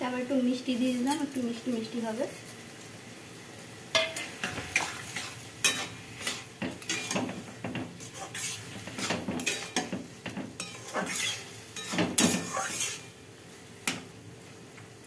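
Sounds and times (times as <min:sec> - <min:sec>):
low sizzle: 0:00.0 - 0:15.0
metal spatula scraping pan: 0:04.0 - 0:13.2.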